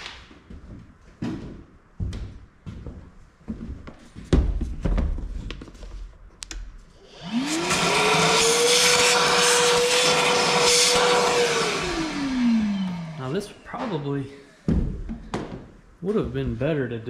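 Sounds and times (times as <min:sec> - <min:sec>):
shop vacuum running: 0:07.0 - 0:14.6.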